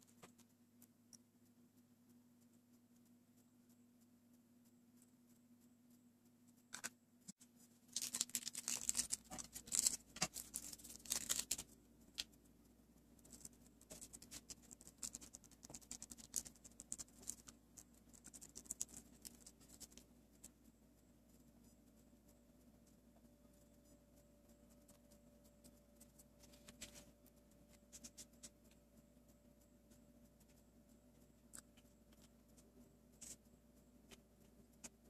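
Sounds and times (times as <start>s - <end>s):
packet crinkling: 7.9s - 12.3s, 13.2s - 17.5s.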